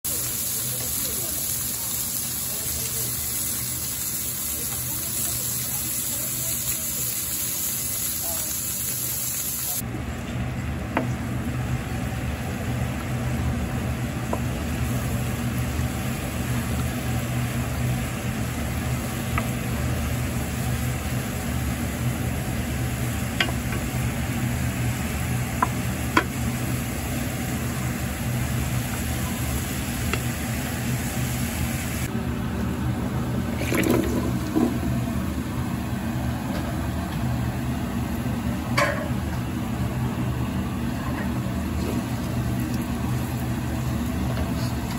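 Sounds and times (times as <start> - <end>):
garlic sizzling in oil: 0.1 - 9.8, 11.2 - 32.1.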